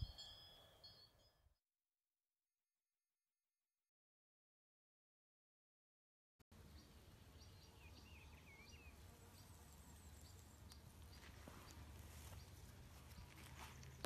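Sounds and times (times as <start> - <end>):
quiet rustling: 11.0 - 14.0.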